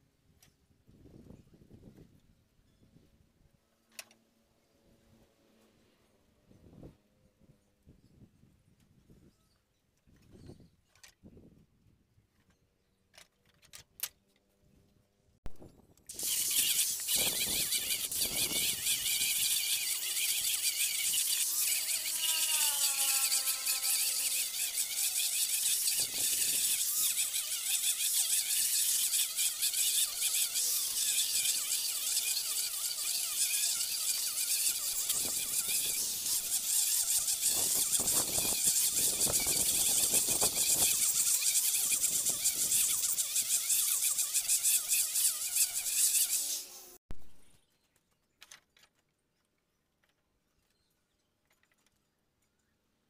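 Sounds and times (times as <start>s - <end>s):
electric disc sander on wood: 16.1s - 47.0s.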